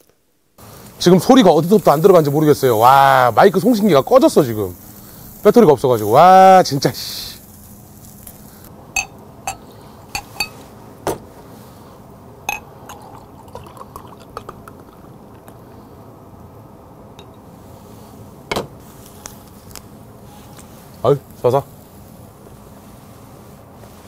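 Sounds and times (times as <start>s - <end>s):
glass clinks: 9.0s - 9.6s, 10.2s - 10.6s, 12.5s - 14.2s, 17.2s - 17.4s
drink pouring gurgle: 12.5s - 15.6s.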